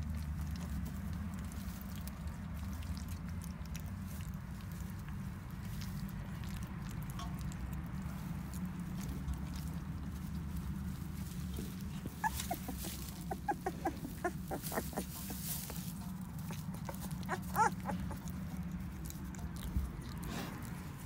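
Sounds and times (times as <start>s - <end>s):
straw rustling: 0.0s - 21.0s
puppies squeaking and whimpering: 11.6s - 15.5s, 16.4s - 18.7s
puppy whining: 11.7s - 15.4s, 16.4s - 18.4s.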